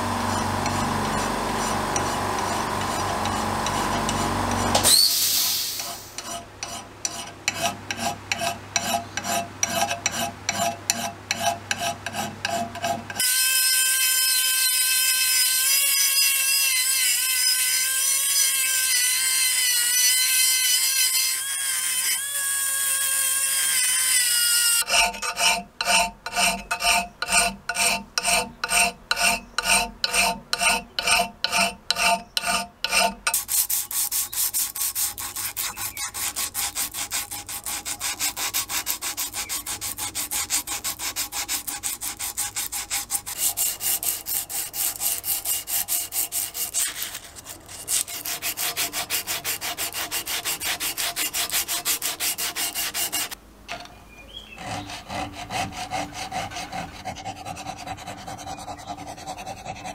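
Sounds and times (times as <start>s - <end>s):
file rasping on metal: 0.0s - 5.0s, 5.8s - 53.4s, 54.5s - 59.9s
sandpaper rubbing on metal: 24.5s - 53.4s, 54.6s - 59.9s.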